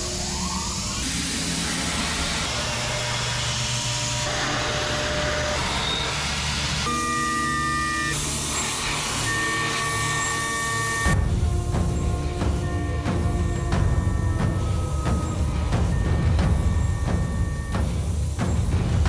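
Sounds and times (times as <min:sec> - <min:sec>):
high cutting whine: 0:00.0 - 0:19.0
milling machine cutting metal: 0:01.0 - 0:19.0.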